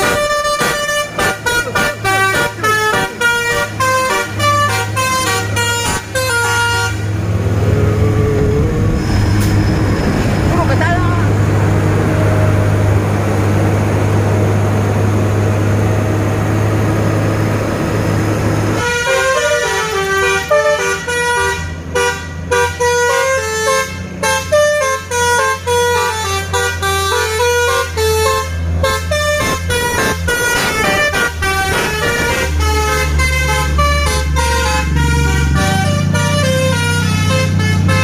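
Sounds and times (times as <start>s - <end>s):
multi-tone horn melody: 0.0s - 9.5s, 18.8s - 38.0s
truck diesel engine droning: 0.0s - 38.0s.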